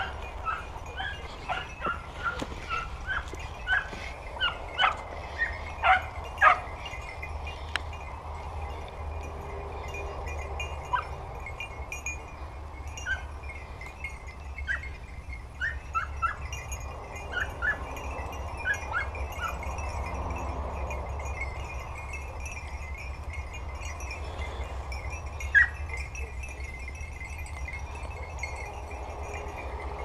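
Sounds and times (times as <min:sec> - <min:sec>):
distant dogs yelping: 0:00.0 - 0:07.6, 0:10.8 - 0:11.3, 0:12.8 - 0:13.6, 0:14.6 - 0:19.8, 0:25.4 - 0:26.8
collar bells tinkling: 0:00.0 - 0:30.0
steady low rumble: 0:00.0 - 0:30.0.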